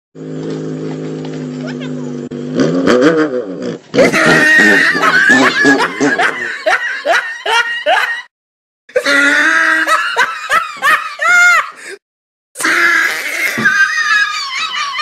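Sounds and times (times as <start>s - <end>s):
loud hard laughter: 1.6s - 2.2s, 4.0s - 8.3s, 8.9s - 12.0s, 12.6s - 15.0s
pitched cry: 1.6s - 2.2s, 12.6s - 15.0s.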